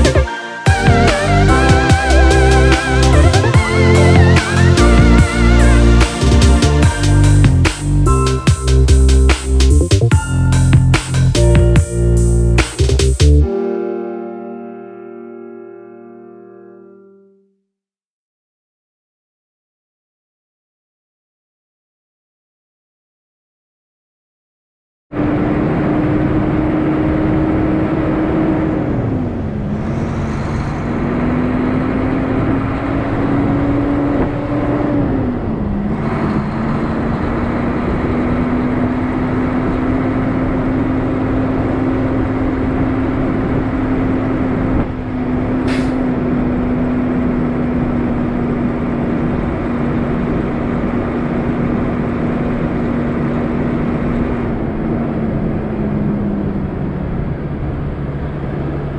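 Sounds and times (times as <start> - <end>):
diesel truck engine pulling: 0.0 - 13.4, 25.2 - 58.9.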